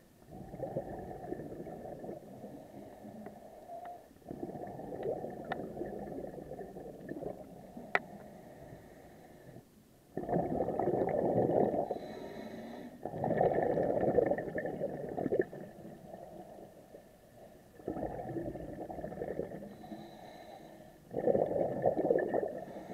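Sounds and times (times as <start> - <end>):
exhaled bubbles gurgling underwater: 0.0 - 22.9.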